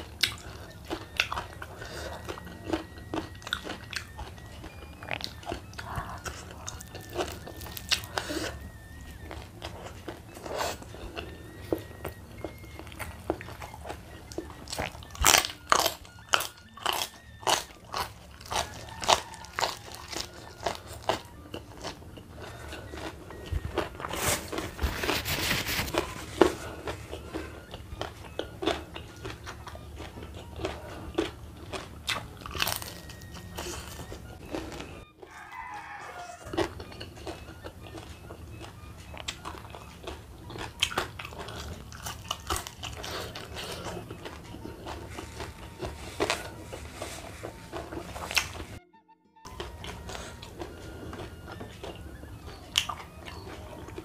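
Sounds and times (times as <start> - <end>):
crunching and chewing leaves: 0.0 - 48.8, 49.5 - 54.0
tissue paper rustle: 24.2 - 26.6.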